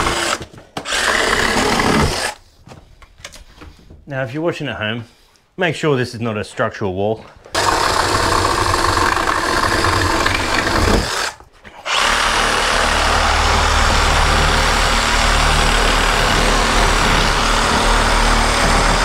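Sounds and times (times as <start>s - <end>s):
handheld power tool running: 0.0s - 2.4s, 7.6s - 19.0s.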